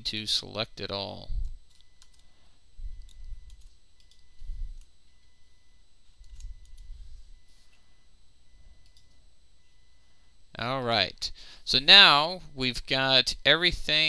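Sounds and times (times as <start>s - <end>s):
computer mouse clicks: 3.0s - 4.9s, 6.2s - 6.9s, 8.8s - 9.2s.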